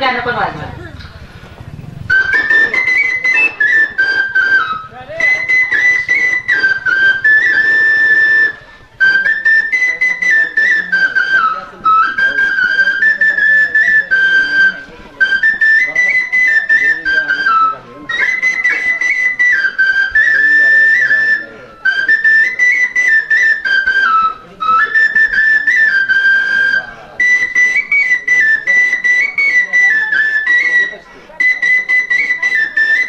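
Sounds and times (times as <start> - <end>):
flute melody: 2.0 - 33.0.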